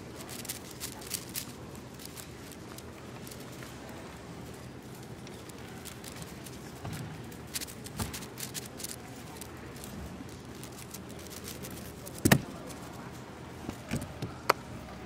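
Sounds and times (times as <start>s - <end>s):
puzzle cube clicking while turned: 0.3s - 3.6s, 7.3s - 9.9s, 10.5s - 12.8s.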